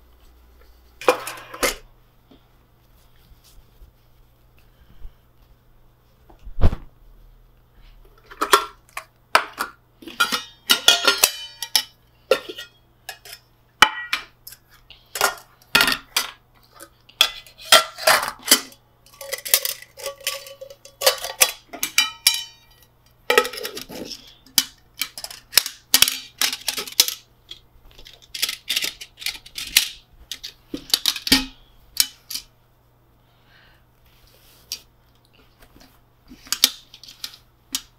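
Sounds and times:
metal pots clinking and clattering: 0:08.2 - 0:16.4, 0:17.2 - 0:27.2.

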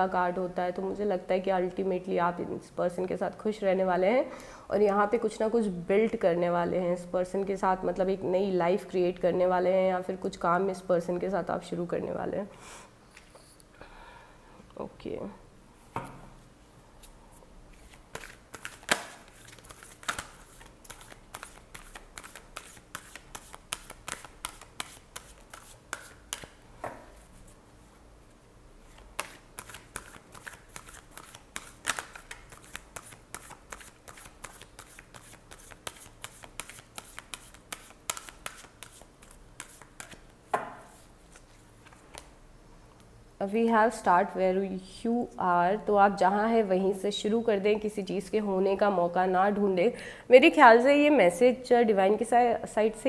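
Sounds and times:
cards being shuffled: 0:17.0 - 0:26.6, 0:28.9 - 0:40.3.

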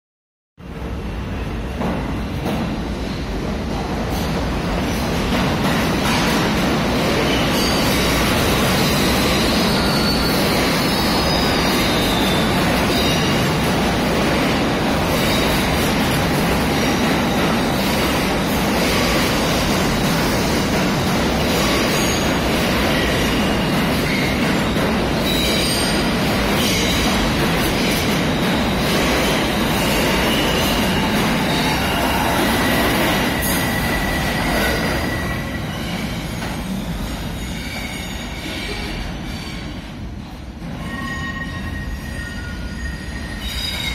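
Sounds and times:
train wheels rumbling on rail: 0:00.6 - 0:43.9
high wheel squeals: 0:08.7 - 0:13.3.

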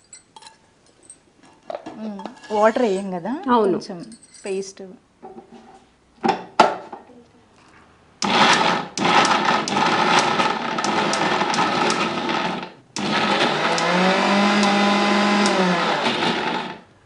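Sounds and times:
mixer grinder motor: 0:08.2 - 0:16.9.

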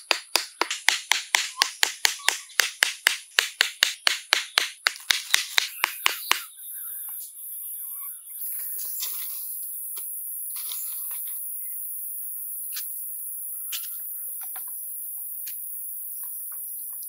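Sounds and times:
wooden club knocking stakes: 0:00.0 - 0:06.5
steady high hiss: 0:06.3 - 0:17.0.

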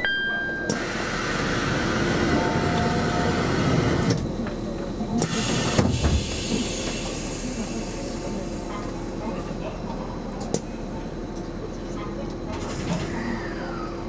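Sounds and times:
train doors knocking shut: 0:05.2 - 0:07.0.

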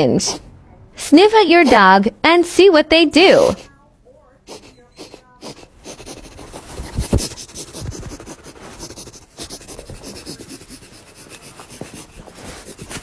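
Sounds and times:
person sniffing: 0:04.5 - 0:13.0.

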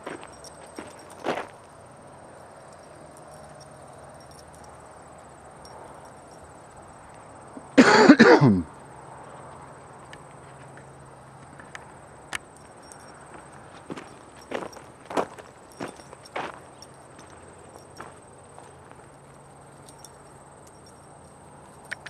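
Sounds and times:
person coughing: 0:07.8 - 0:08.7.

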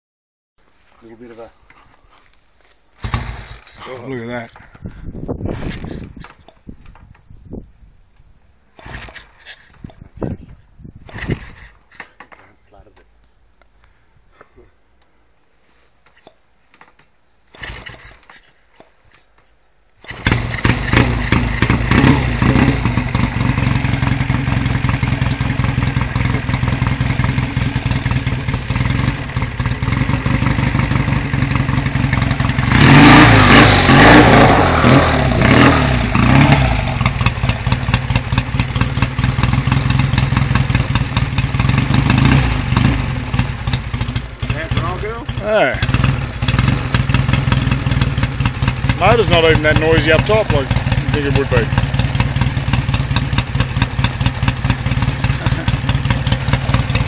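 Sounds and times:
motorcycle engine kick-started: 0:03.0 - 0:04.2, 0:08.7 - 0:10.0, 0:11.0 - 0:12.2, 0:17.5 - 0:18.9, 0:20.0 - 0:57.0
motorcycle engine idling and revving: 0:03.0 - 0:04.5, 0:08.7 - 0:10.4, 0:20.0 - 0:57.0.

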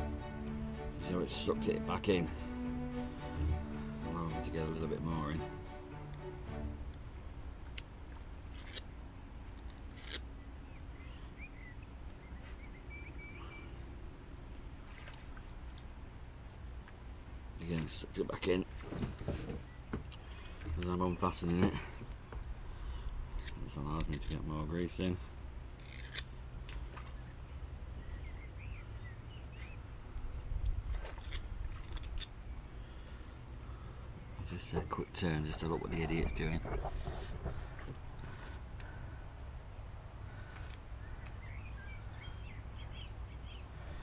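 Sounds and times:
steady low rumble: 0:00.0 - 0:44.0
small bird chirping: 0:10.0 - 0:13.8, 0:28.0 - 0:29.8, 0:41.0 - 0:43.8.

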